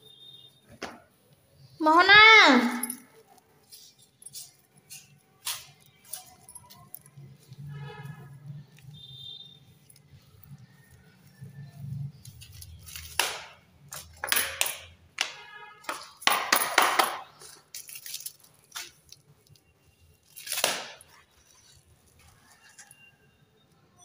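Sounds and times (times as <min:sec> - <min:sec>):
broom sweeping floor: 0:03.6 - 0:05.8.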